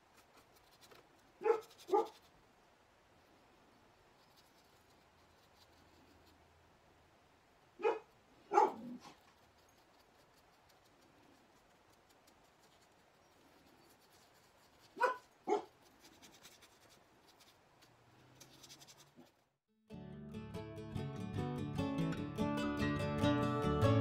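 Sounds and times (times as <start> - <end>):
paintbrush scratching on paper: 0.0 - 2.4, 4.1 - 6.4, 9.0 - 19.5
dog barking: 1.4 - 2.2, 7.8 - 9.2, 15.0 - 15.8.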